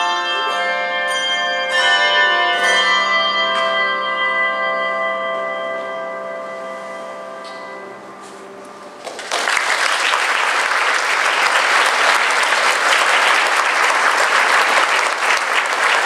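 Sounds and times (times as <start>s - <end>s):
audience applause: 9.0s - 16.0s.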